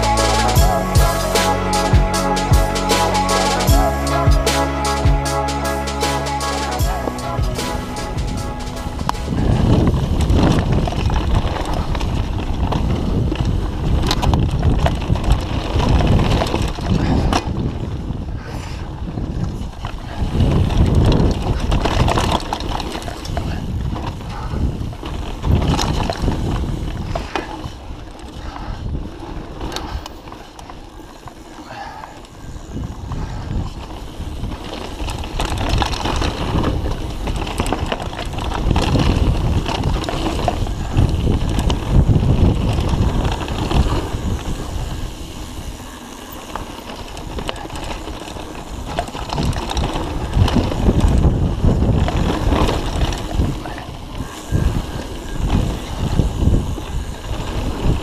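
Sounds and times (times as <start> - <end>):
wind buffeting microphone: 7.9 - 58.0
bike rattling and knocking: 9.1 - 58.0
tyres rumbling on dirt: 19.2 - 58.0.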